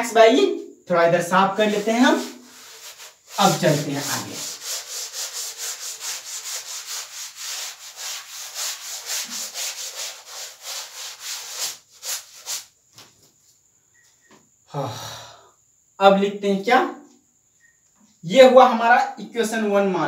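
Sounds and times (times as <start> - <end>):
eraser rubbing on chalkboard: 1.5 - 12.8.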